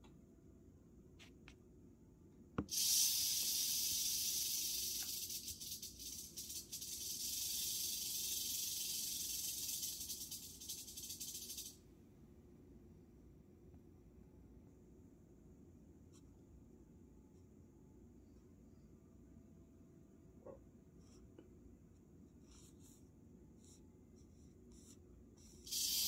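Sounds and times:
rattlesnake rattling: 0:02.7 - 0:11.8, 0:25.6 - 0:26.0.

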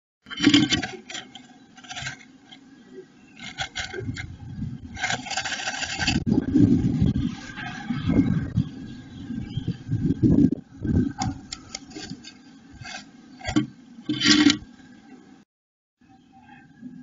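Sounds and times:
bird scratching in nest: 0:00.3 - 0:07.8, 0:10.8 - 0:14.7.

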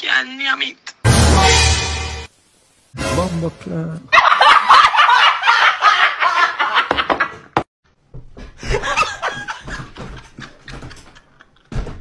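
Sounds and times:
women shrieking with laughter: 0:04.1 - 0:06.7.

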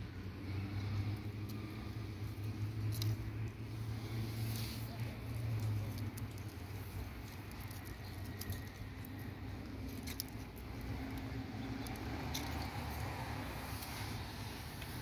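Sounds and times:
hand stroking cat fur: 0:01.6 - 0:08.6.

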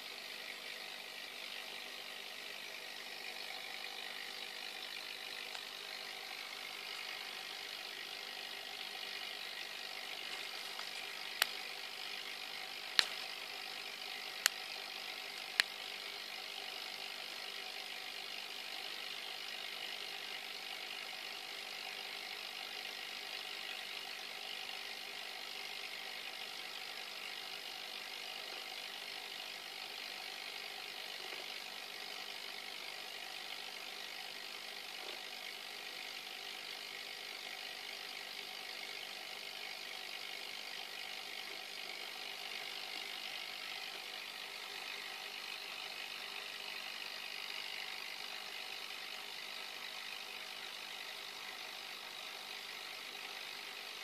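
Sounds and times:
small motor humming: 0:00.0 - 0:54.0
sharp clicks: 0:12.9 - 0:13.4.

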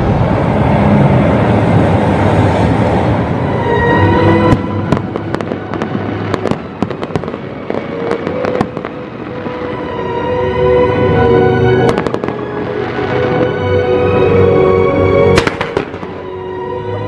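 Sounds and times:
music with held notes: 0:03.3 - 0:17.0
fireworks bangs and pops: 0:04.4 - 0:09.8, 0:11.8 - 0:13.5, 0:15.4 - 0:16.2.

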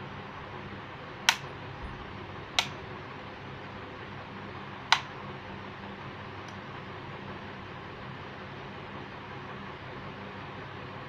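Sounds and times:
rocker switch clicking: 0:02.6 - 0:02.8, 0:04.9 - 0:05.1.

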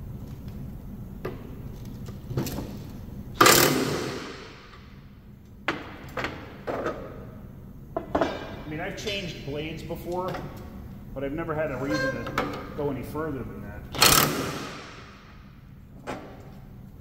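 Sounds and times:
impact wrench burst: 0:03.4 - 0:04.6, 0:14.0 - 0:15.3.

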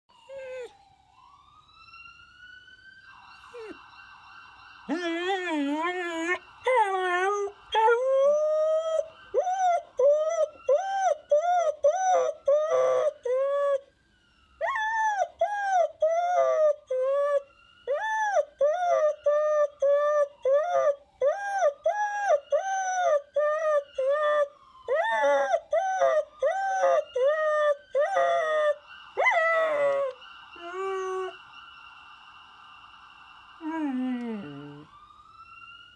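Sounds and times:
faint siren wailing: 0:00.1 - 0:35.9
dog howling: 0:00.2 - 0:00.8, 0:03.4 - 0:03.8, 0:04.9 - 0:13.8, 0:14.6 - 0:31.4, 0:33.6 - 0:34.9.

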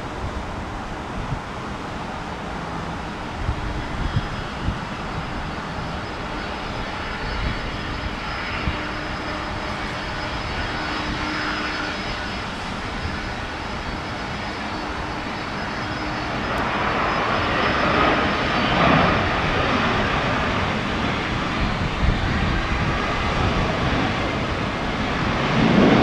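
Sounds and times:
jet engines whining: 0:00.0 - 0:26.0.

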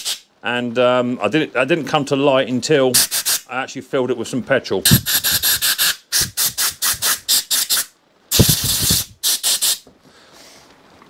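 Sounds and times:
short burst of hiss: 0:00.0 - 0:00.3, 0:03.0 - 0:03.5, 0:04.9 - 0:09.8.

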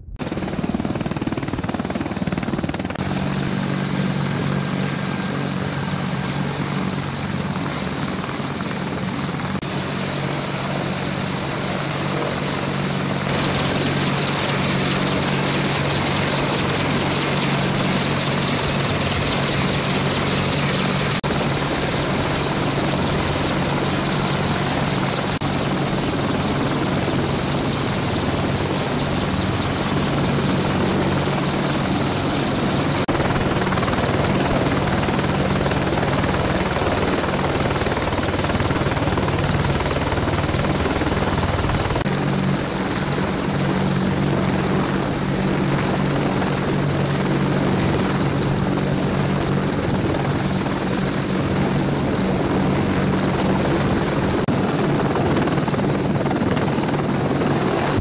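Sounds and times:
helicopter engines and rotors droning: 0:00.0 - 0:58.0.

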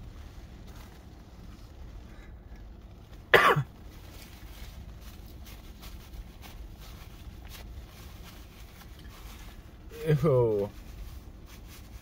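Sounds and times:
rustling: 0:00.0 - 0:12.0
man coughing: 0:03.3 - 0:03.7.

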